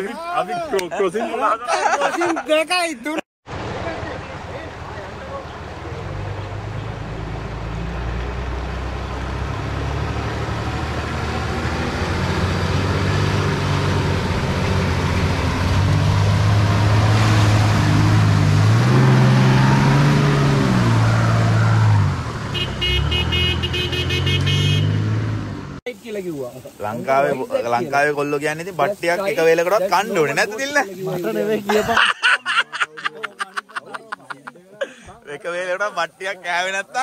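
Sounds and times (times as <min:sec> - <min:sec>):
vehicle engine approaching: 0:03.5 - 0:25.8.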